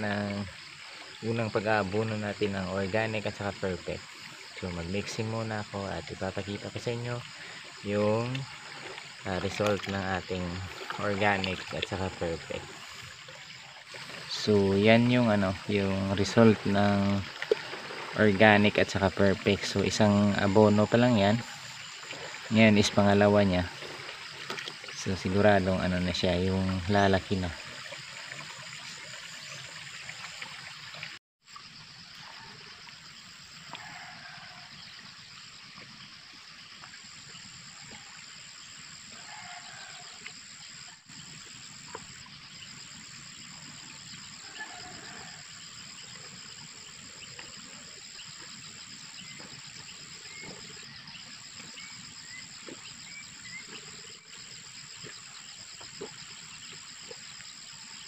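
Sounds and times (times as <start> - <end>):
high-pitched insect chorus: 0.0 - 58.0
faint animal calls: 33.6 - 34.8, 39.0 - 40.4, 44.3 - 46.4.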